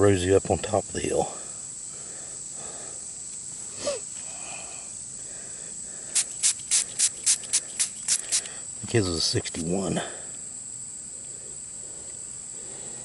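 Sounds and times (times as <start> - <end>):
high cricket-like trill: 0.0 - 13.0
spray bottle squirting: 6.2 - 8.6.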